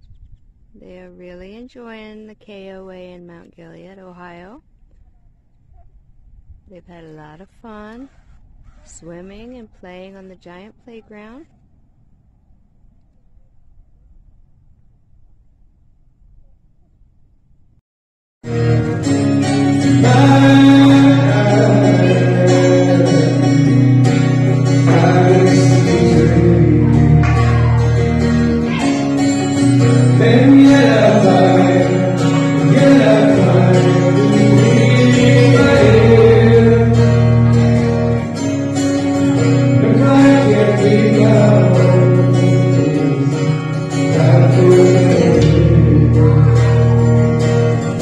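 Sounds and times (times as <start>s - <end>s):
acoustic guitar: 18.4s - 48.0s
person singing: 18.5s - 48.0s.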